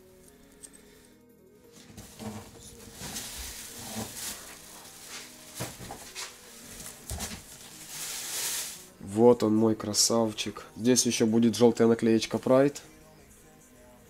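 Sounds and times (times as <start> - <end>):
plastic wrapping crinkling: 1.8 - 8.9.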